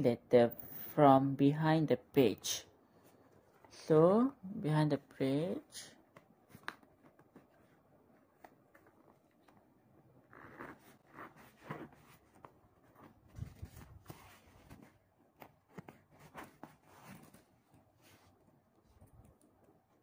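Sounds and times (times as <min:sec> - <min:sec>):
felt pages rustling: 0:06.1 - 0:18.6.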